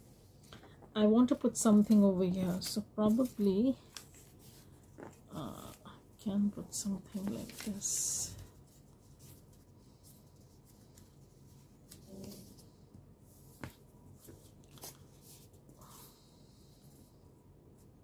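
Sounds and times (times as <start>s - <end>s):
paper rustling: 2.6s - 5.2s, 7.1s - 12.8s, 13.4s - 15.9s.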